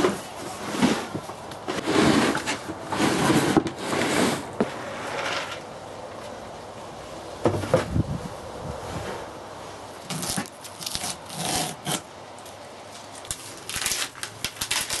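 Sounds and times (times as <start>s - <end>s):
wooden chest scraping and knocking: 7.4s - 8.0s.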